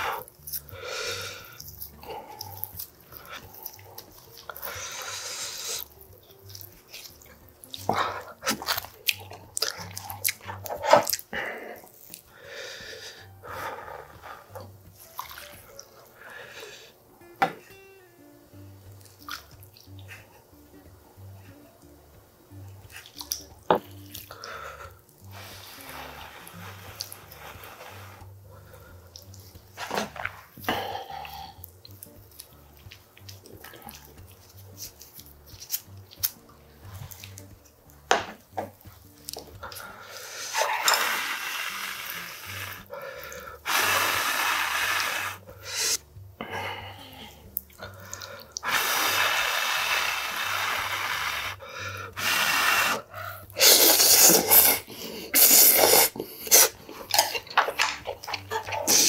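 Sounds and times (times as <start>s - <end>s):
noodles being slurped: 0.0s - 12.3s, 24.2s - 28.3s, 39.3s - 46.0s, 47.8s - 59.0s
chewing: 0.2s - 12.4s, 13.8s - 16.3s, 18.9s - 20.5s, 22.8s - 25.3s, 26.5s - 27.6s, 28.6s - 38.0s, 38.6s - 41.2s, 47.0s - 48.8s, 53.0s - 59.0s.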